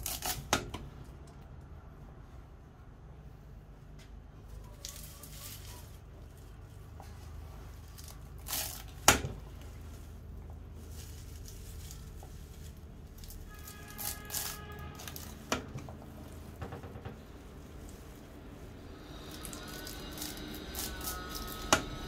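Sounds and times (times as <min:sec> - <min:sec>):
leaves crunching under cuts: 0:04.7 - 0:16.3, 0:17.4 - 0:22.0.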